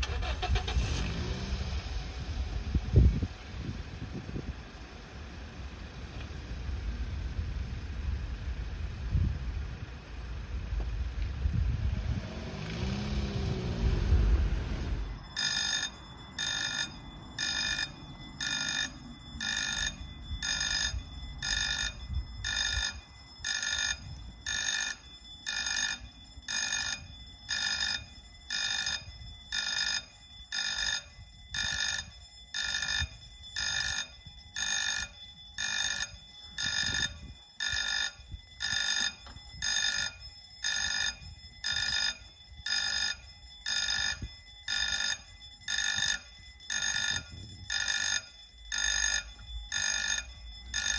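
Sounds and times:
level crossing warning bell: 0:00.0 - 0:01.2, 0:12.6 - 0:50.9
car passing: 0:10.2 - 0:19.2.

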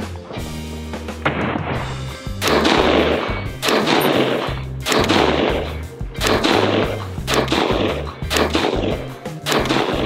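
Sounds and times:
rifle shots: 0:02.4 - 0:10.0.

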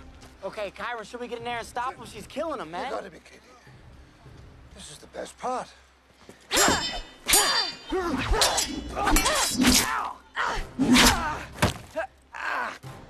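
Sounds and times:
metal blades clanging: 0:06.5 - 0:10.2
people grunting and crying out: 0:06.5 - 0:13.0.

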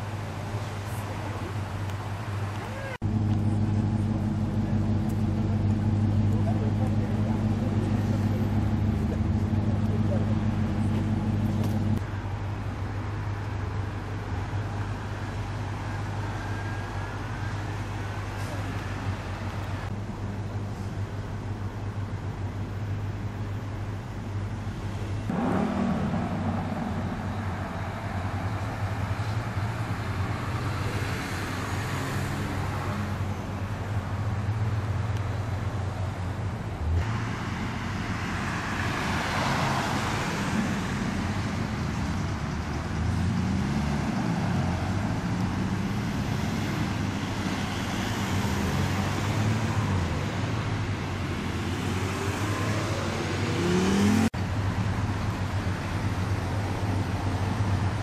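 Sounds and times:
road traffic: 0:00.0 - 0:58.0
car engine running: 0:03.0 - 0:12.0, 0:21.1 - 0:30.5
car driving past: 0:25.3 - 0:33.2, 0:51.2 - 0:54.4.

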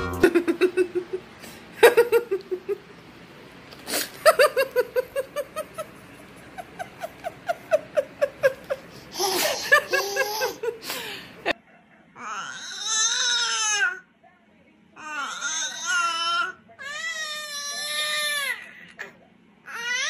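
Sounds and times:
baby giggling: 0:04.2 - 0:11.0.

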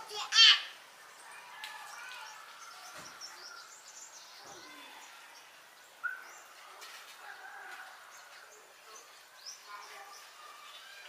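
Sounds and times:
faint outdoor hiss: 0:00.0 - 0:11.0
distant bird chirps: 0:01.0 - 0:06.8.

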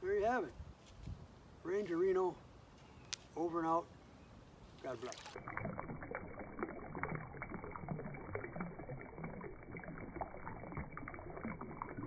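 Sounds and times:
stream running over rocks: 0:04.8 - 0:12.0.

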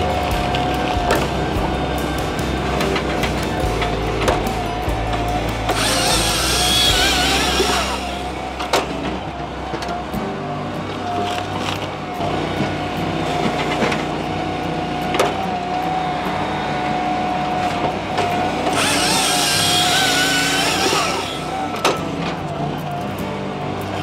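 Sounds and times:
firewood processor whining: 0:00.0 - 0:24.0
loud hissing squeal: 0:05.8 - 0:08.4.

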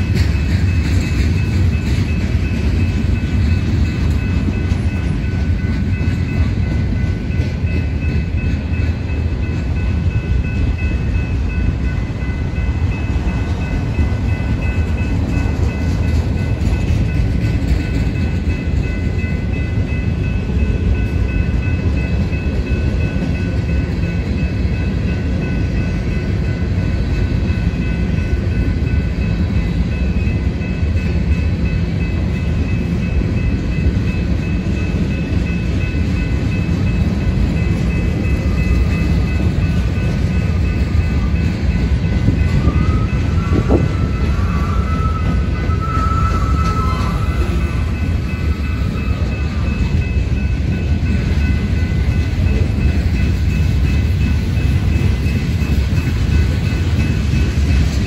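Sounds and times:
train wheels rumbling on rail: 0:00.0 - 0:58.0
high ringing tone: 0:18.0 - 0:58.0.

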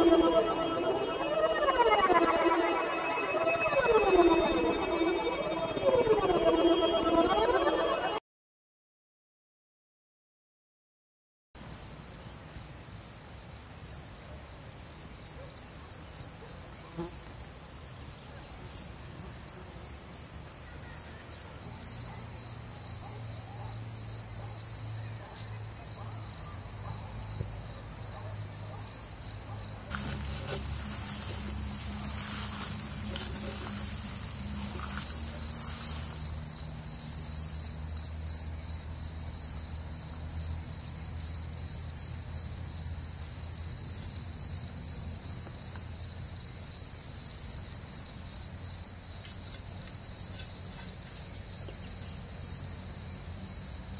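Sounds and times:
crickets trilling: 0:28.7 - 0:44.7.

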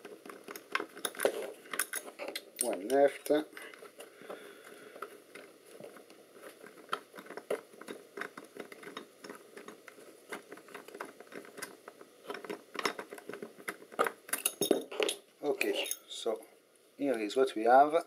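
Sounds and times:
screwdriver clicks and scrapes: 0:05.0 - 0:16.0.

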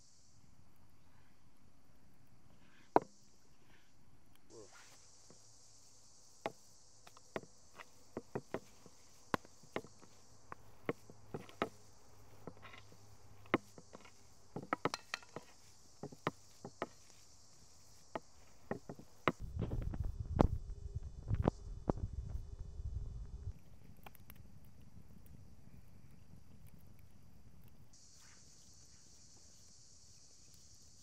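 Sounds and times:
insects buzzing: 0:00.0 - 0:31.0
cleaver chopping on wooden board: 0:07.1 - 0:11.8, 0:12.4 - 0:17.1
low rumble: 0:19.4 - 0:23.5.

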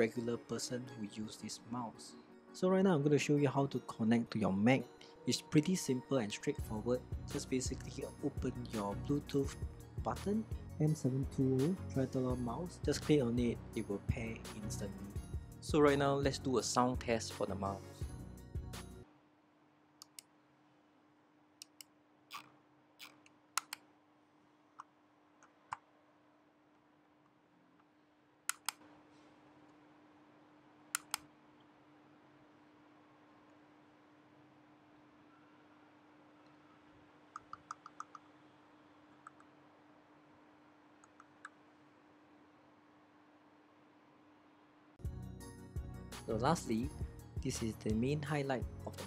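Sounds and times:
faint steady hum: 0:17.6 - 0:45.1.

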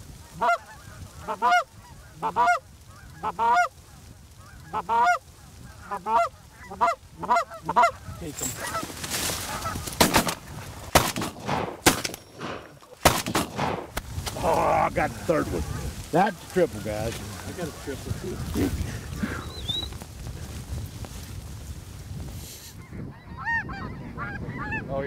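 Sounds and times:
goose honking: 0:00.2 - 0:10.4
shotgun blasts: 0:10.0 - 0:14.1.

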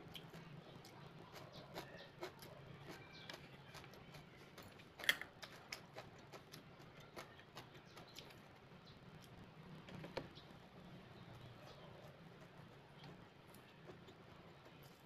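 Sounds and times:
quiet chewing: 0:00.0 - 0:15.0.

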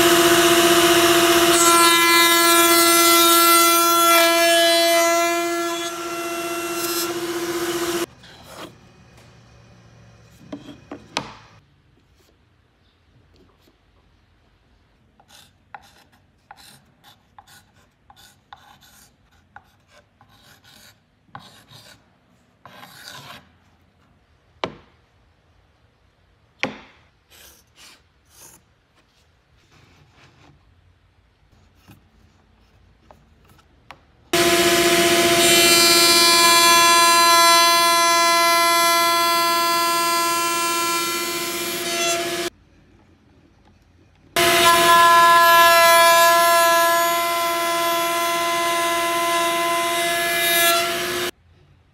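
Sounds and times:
router whining: 0:00.0 - 0:08.1, 0:34.4 - 0:42.5, 0:44.4 - 0:51.3.

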